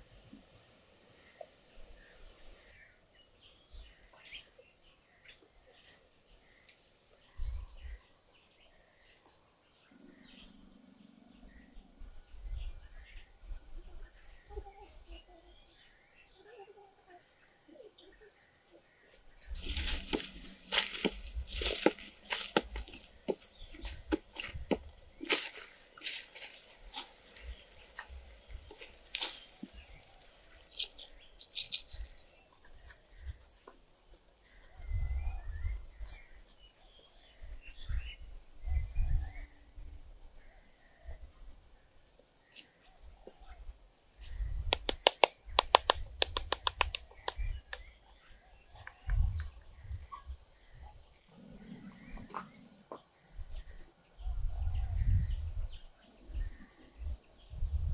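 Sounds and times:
insect drone: 0.0s - 57.9s
sharp clicks and knocks: 44.7s - 47.9s.

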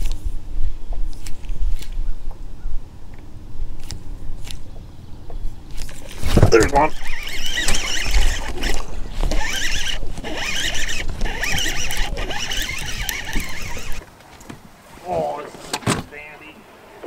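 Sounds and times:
fishing reel whirring: 5.7s - 14.0s.

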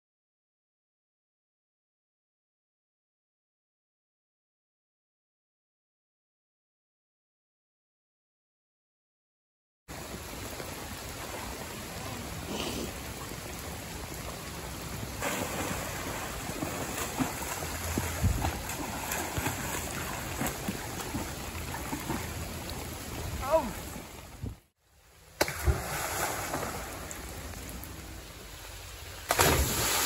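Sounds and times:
creek rushing: 9.9s - 30.0s.

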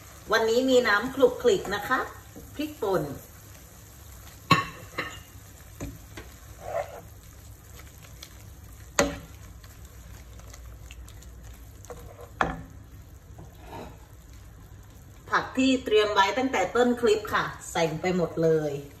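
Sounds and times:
beef sizzling in a pan: 0.0s - 19.0s
wooden spoon stirring: 5.6s - 15.3s.

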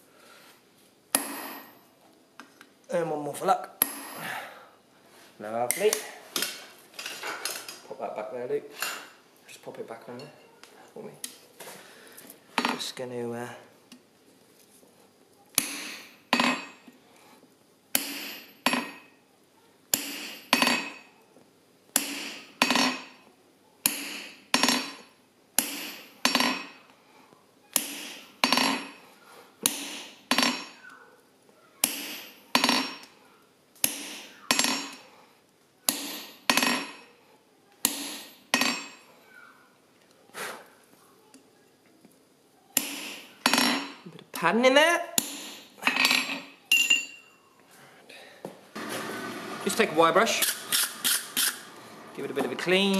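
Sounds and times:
hammer striking metal punch: 1.1s - 1.8s, 15.6s - 16.8s, 18.0s - 19.0s, 19.9s - 21.0s, 22.0s - 23.1s, 23.8s - 25.0s, 25.6s - 26.8s, 31.8s - 33.1s, 33.8s - 35.0s, 35.9s - 37.0s, 37.8s - 39.0s.

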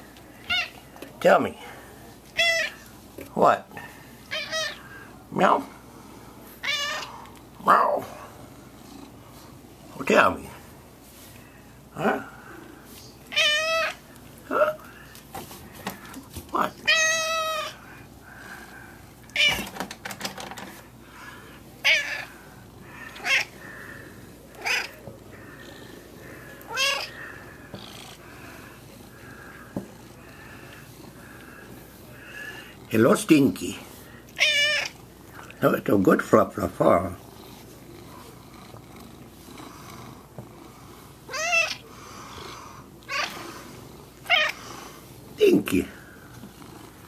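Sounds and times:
cat meowing: 0.4s - 0.8s, 2.4s - 2.8s, 4.3s - 4.8s, 6.6s - 7.1s, 13.3s - 14.0s, 16.8s - 17.8s, 19.3s - 19.7s, 21.8s - 22.3s, 23.1s - 23.5s, 24.5s - 25.0s, 26.7s - 27.2s, 34.4s - 35.0s, 41.3s - 41.8s, 43.1s - 43.3s, 44.3s - 44.6s
cat purring: 8.5s - 9.5s, 37.0s - 44.9s, 46.3s - 47.0s.

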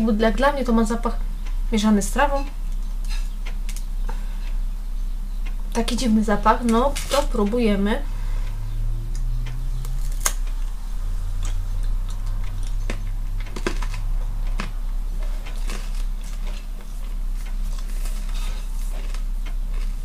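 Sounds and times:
steady low hum: 0.0s - 20.0s
crunching brittle snack bar: 9.8s - 10.6s, 11.4s - 14.8s, 15.4s - 16.8s, 17.7s - 20.0s.

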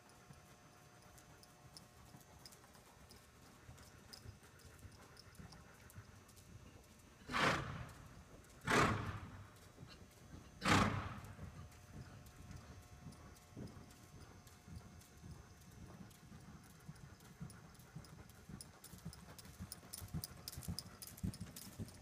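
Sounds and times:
faint hoofbeats on soft ground: 0.0s - 7.3s, 7.9s - 22.0s
pony snorting: 7.2s - 10.0s, 10.6s - 11.4s.

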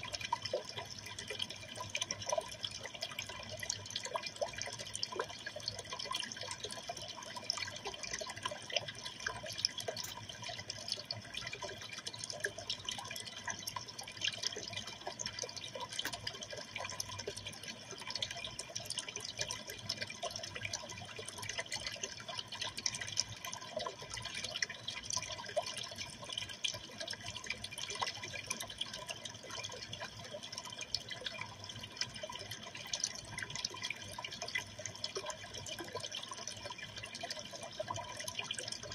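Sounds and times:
tiny water splashes: 0.0s - 38.9s
water trickling and bubbling: 0.0s - 38.9s.

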